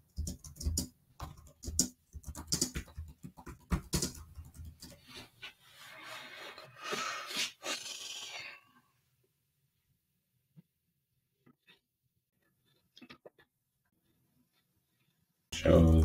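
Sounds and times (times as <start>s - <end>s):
typing on computer keyboard: 0.0s - 5.0s.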